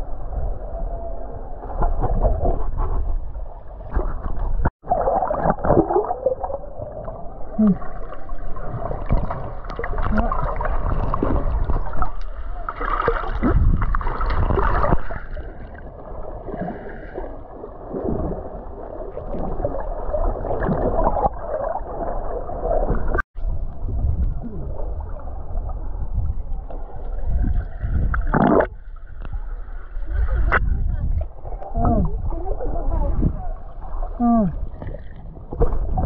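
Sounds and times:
muffled water gurgling: 0:00.0 - 0:36.0.

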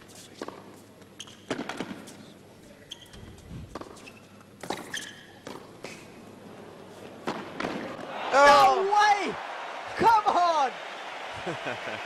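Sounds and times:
shoe squeaks: 0:01.1 - 0:01.6, 0:02.8 - 0:05.5.

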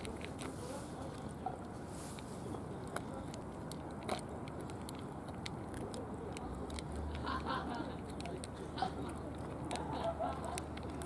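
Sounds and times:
cats chewing: 0:00.0 - 0:11.0.

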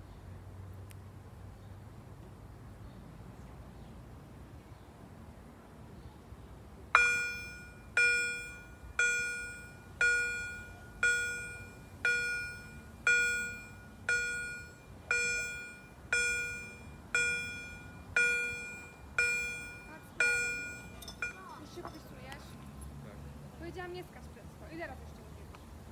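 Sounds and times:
level crossing warning bell: 0:07.0 - 0:22.4.

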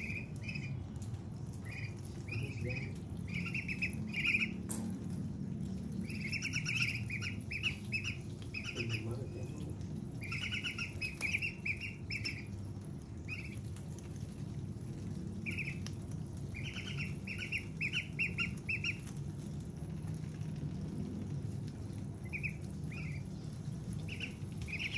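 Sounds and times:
ducklings peeping: 0:00.0 - 0:04.7, 0:05.9 - 0:14.2, 0:15.3 - 0:19.2, 0:22.1 - 0:24.9.

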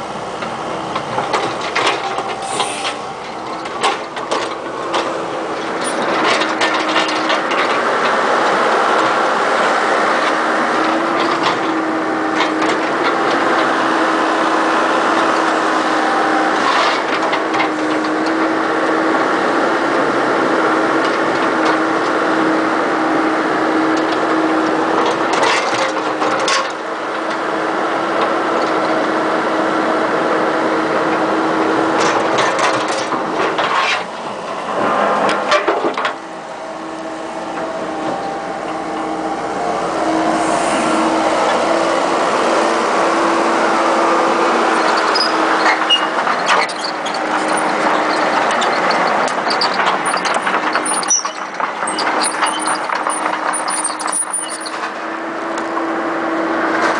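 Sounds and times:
excavator engine and hydraulics hum: 0:00.0 - 0:56.9.

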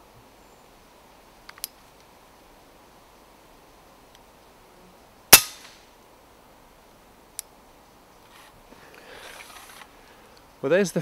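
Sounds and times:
air rifle shot: 0:05.3 - 0:05.8
faint rustling: 0:07.6 - 0:10.5.

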